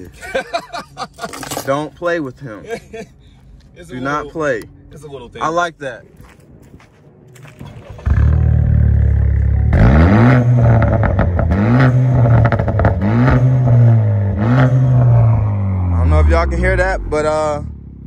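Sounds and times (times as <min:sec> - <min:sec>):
car engine starting and idling: 0:07.4 - 0:18.0
car engine revving: 0:07.7 - 0:18.0.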